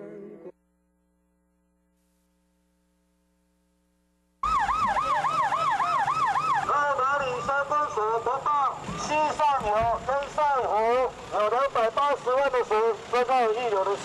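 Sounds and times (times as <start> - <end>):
faint hum: 0.0 - 4.4
emergency siren yelping wail: 4.4 - 10.1.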